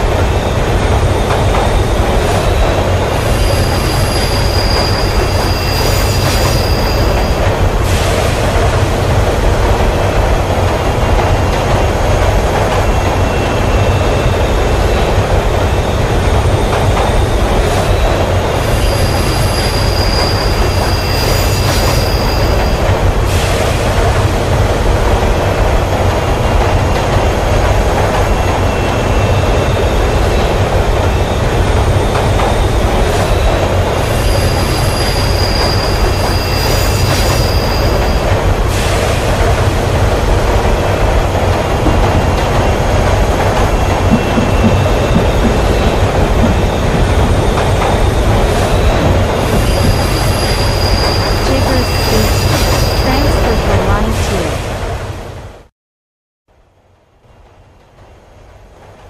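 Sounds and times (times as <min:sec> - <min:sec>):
subway train rumbling in tunnel: 0:00.0 - 0:55.7, 0:56.6 - 0:59.0
high wheel squeal: 0:03.2 - 0:07.4, 0:17.8 - 0:22.8, 0:33.3 - 0:38.9, 0:47.6 - 0:53.6.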